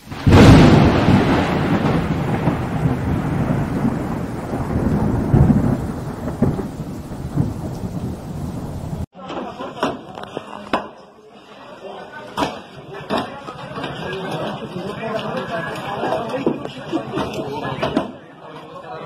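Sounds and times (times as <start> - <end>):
thunder clap and rolling rumble: 0.0 - 9.1.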